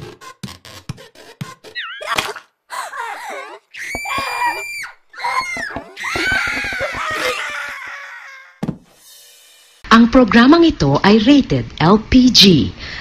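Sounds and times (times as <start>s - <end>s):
high-pitched cartoon screams: 1.8s - 8.6s.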